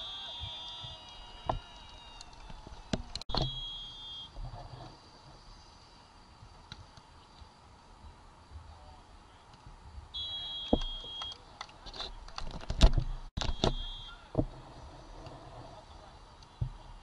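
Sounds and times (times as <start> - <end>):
referee's whistle blast: 0.0 - 1.0, 3.3 - 4.3, 10.2 - 11.4, 13.4 - 14.3.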